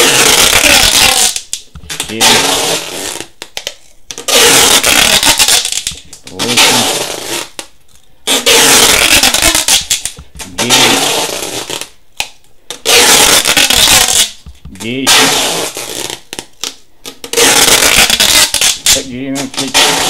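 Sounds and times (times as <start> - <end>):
packing tape screeching off roll: 0.0 - 7.6, 8.3 - 12.0, 12.7 - 20.0.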